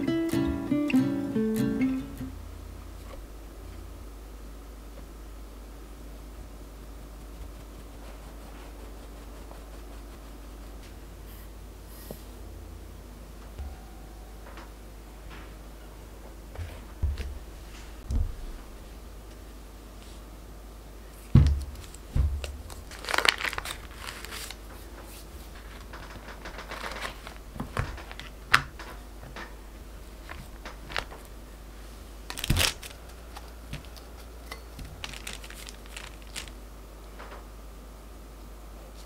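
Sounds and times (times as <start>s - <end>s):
dull thumps: 16.5s - 18.8s, 21.3s - 23.2s
foil wrapper crinkling: 21.5s - 24.7s, 25.5s - 28.4s, 32.3s - 36.6s.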